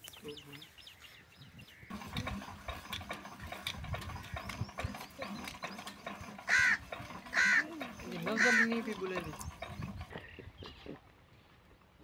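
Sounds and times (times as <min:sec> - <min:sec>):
mechanical clicking and knocking: 0:01.9 - 0:10.1.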